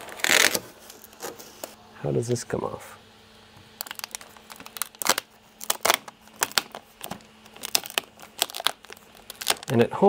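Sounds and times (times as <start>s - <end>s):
tape peeling off glass: 0.0s - 1.8s, 3.8s - 9.7s.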